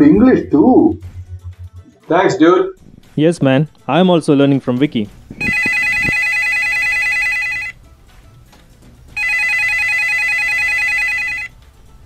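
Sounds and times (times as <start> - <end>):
telephone trilling ring: 5.4 - 7.8, 9.2 - 11.5.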